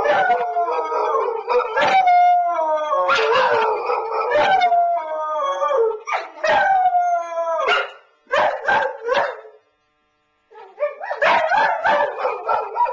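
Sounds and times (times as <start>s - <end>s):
dogs howling and yelping: 0.0s - 7.9s, 10.6s - 12.9s.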